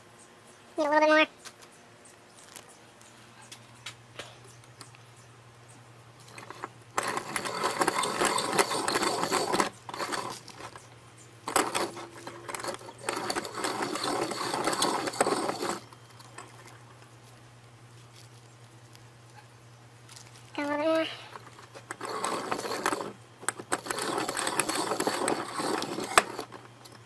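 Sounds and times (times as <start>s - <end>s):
hand-cranked filer rasping: 6.4s - 10.8s, 11.5s - 15.9s, 21.8s - 26.7s.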